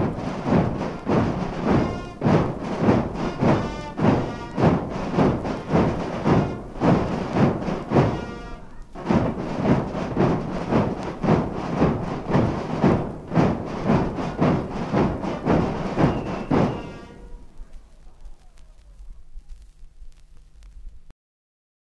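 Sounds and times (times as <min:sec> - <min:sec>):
brass band playing a march: 0:00.0 - 0:17.5.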